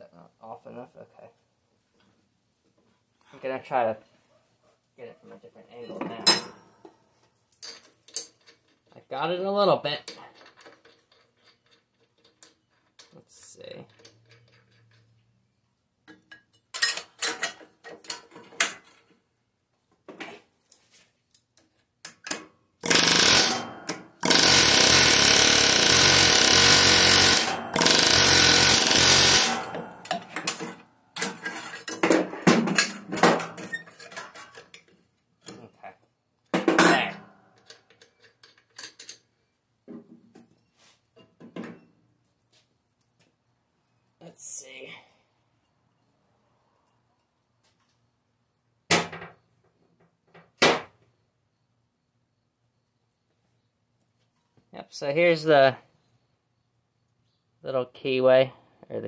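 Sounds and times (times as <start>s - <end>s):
metal clanks and knocks: 5.9s - 6.9s, 28.7s - 35.6s
pneumatic air hammer: 22.8s - 30.6s.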